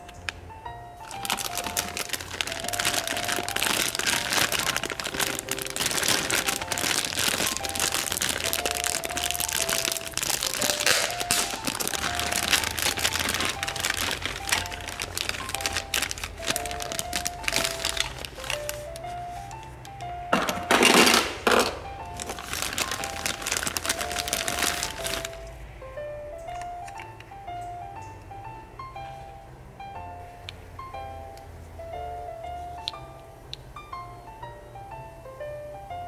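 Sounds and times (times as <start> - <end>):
simple background melody: 0.0 - 36.0
plastic bags crinkling: 1.0 - 25.6.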